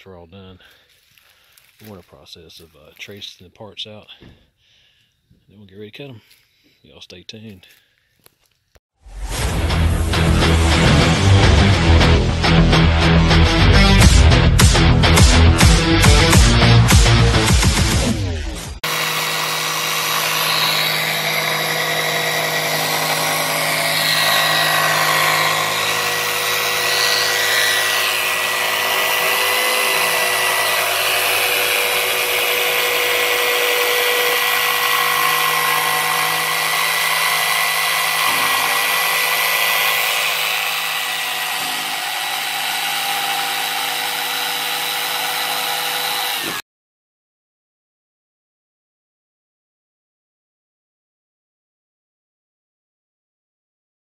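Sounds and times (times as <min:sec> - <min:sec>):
jigsaw cutting plywood: 0:15.7 - 0:46.6.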